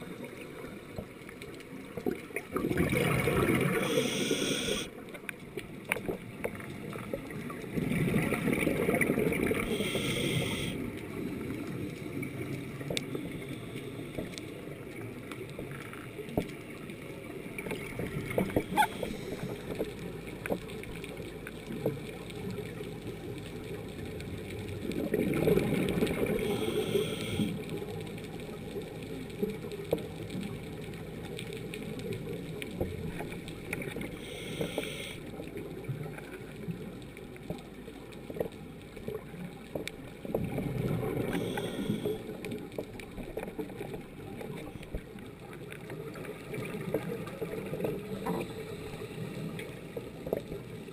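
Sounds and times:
bubbling exhalations underwater: 2.5s - 4.0s
steady hiss: 3.6s - 5.0s, 9.5s - 11.9s, 26.1s - 28.1s, 33.8s - 35.4s, 41.1s - 42.5s
faint clicks: 3.6s - 50.9s.

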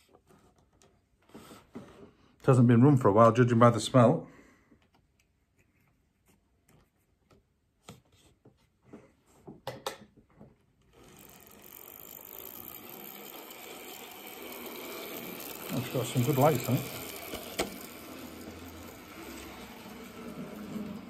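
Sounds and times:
small clicks on model track: 10.8s - 21.0s
small electric motor whirring: 10.8s - 21.0s.

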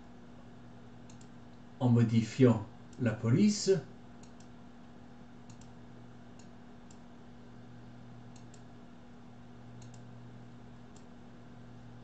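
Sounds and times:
low electrical hum: 0.0s - 12.0s
faint computer mouse clicks: 1.0s - 1.6s, 4.2s - 4.6s, 5.4s - 5.8s, 6.4s - 7.1s, 8.3s - 8.7s, 9.8s - 10.1s, 10.9s - 11.1s.

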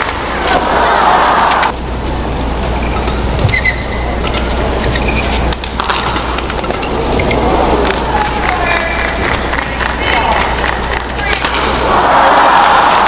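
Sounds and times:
arena crowd noise: 0.0s - 2.9s, 6.3s - 13.0s
shoes squeaking on court: 2.1s - 7.8s
rackets hitting shuttlecock: 5.5s - 11.9s.

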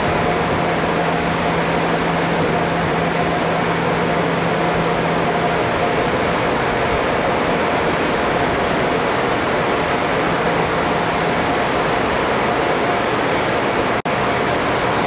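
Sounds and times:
machinery rushing drone: 0.0s - 15.0s.

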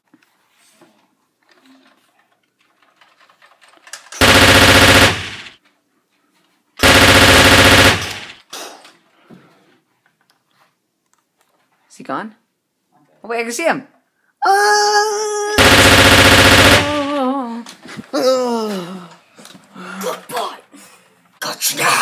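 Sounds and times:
machine-gun sound effect: 4.2s - 5.6s, 6.8s - 8.4s, 15.6s - 17.2s.

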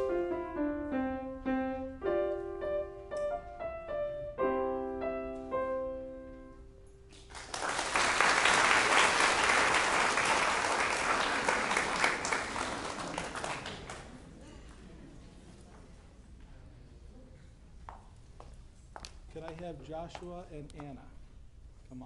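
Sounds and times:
grand piano playing: 0.0s - 7.1s
audience applause: 7.2s - 14.2s.

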